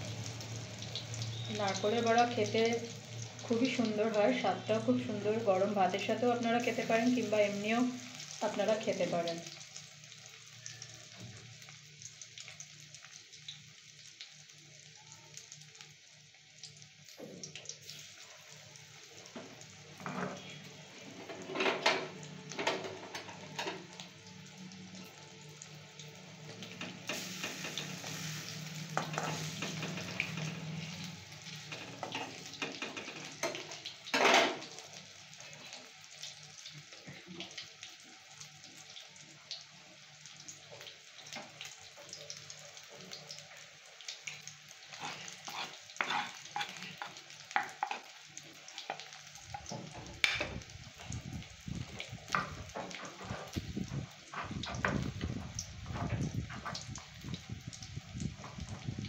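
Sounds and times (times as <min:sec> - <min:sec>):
fritters sizzling in oil: 0:00.0 - 0:59.0
metal spatula scraping a wok: 0:44.9 - 0:48.0.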